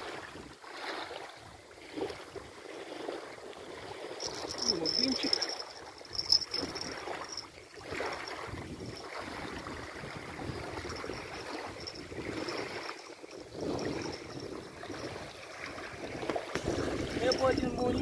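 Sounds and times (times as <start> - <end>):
gusty wind on microphone: 6.0 - 18.0.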